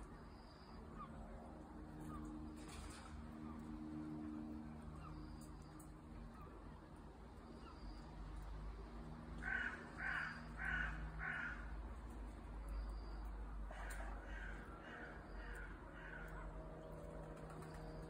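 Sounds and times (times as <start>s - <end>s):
crow cawing: 9.4s - 11.7s, 13.7s - 16.5s.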